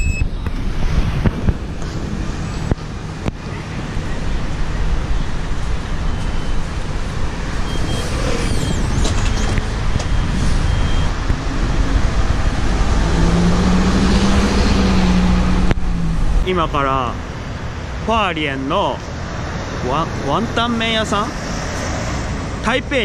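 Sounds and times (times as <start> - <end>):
short high beeps: 0.0 - 0.4, 7.6 - 11.2
bus engine hum: 0.0 - 18.1
city street traffic rumbling: 0.0 - 23.0.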